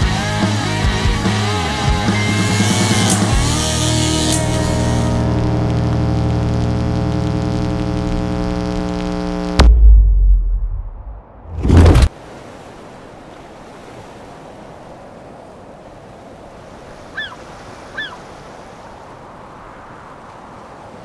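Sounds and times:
surf: 0:00.0 - 0:21.0
loud whoosh: 0:09.6 - 0:12.1
wind: 0:09.8 - 0:21.0
short bird calls: 0:17.1 - 0:18.3.

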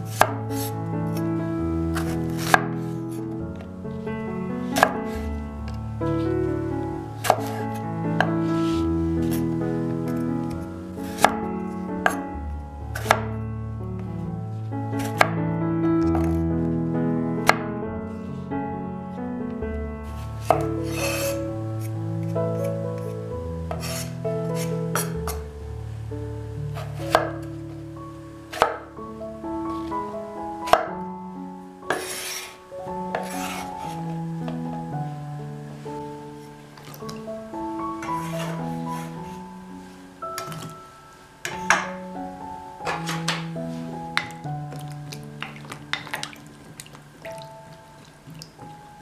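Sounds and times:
background music: 0:00.0 - 0:49.0
blade scraping across board: 0:02.0 - 0:03.0, 0:20.4 - 0:21.9, 0:23.7 - 0:25.2, 0:31.9 - 0:34.0, 0:38.0 - 0:39.4
cleaver chopping on cutting board: 0:04.8 - 0:05.0.

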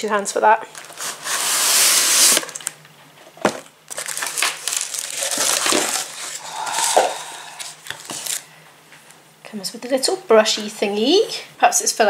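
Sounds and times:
cardboard and plastic rustling: 0:00.7 - 0:06.5, 0:07.6 - 0:08.4.

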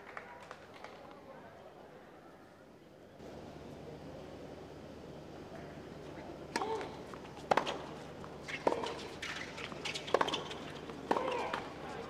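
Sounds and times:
rackets hitting tennis ball: 0:06.5 - 0:12.0.

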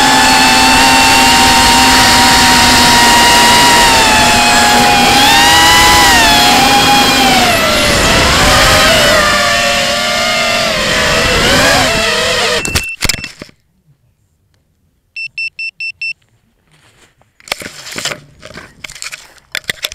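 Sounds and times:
quadcopter motors whining: 0:00.0 - 0:12.8
short electronic beeps: 0:12.5 - 0:13.4, 0:15.2 - 0:16.2
grass rustling: 0:16.2 - 0:19.9.

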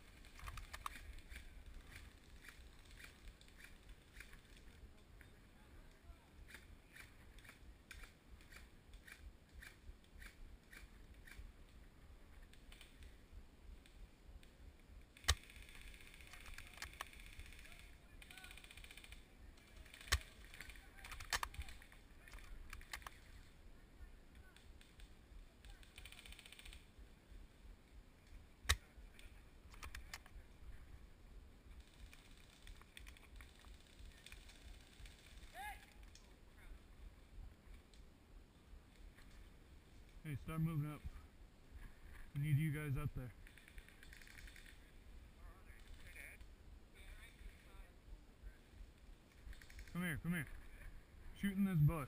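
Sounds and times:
airsoft guns clicking: 0:00.2 - 0:04.8, 0:13.8 - 0:23.3, 0:28.2 - 0:30.4, 0:43.4 - 0:44.9, 0:49.3 - 0:49.9.

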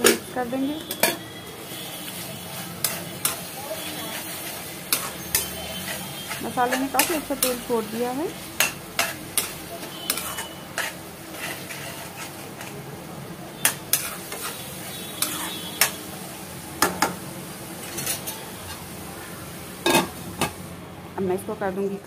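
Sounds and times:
paste sizzling in oil: 0:00.0 - 0:20.8
spatula scraping and knocking pan: 0:02.1 - 0:08.0, 0:08.6 - 0:12.8, 0:13.6 - 0:16.0, 0:17.8 - 0:18.8.

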